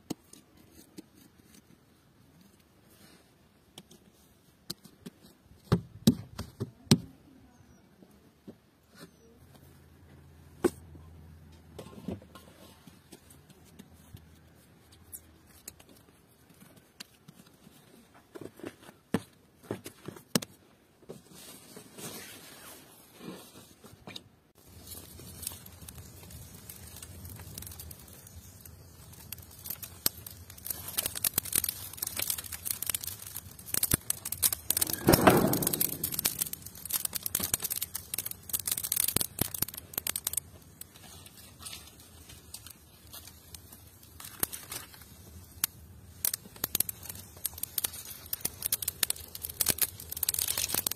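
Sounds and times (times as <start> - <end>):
wood fire crackling and popping: 13.1 - 18.7, 24.6 - 50.9
brushwood rustling and snapping: 29.6 - 40.4
rustling thud: 34.7 - 37.3.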